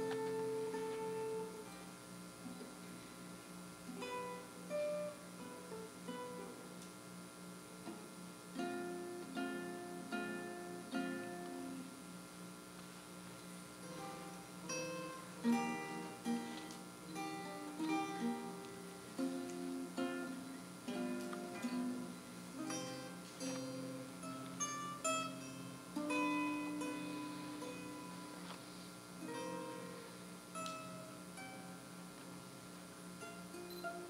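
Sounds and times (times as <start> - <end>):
solo acoustic guitar: 0.0 - 3.2, 3.8 - 6.9, 7.6 - 12.0, 13.6 - 34.0.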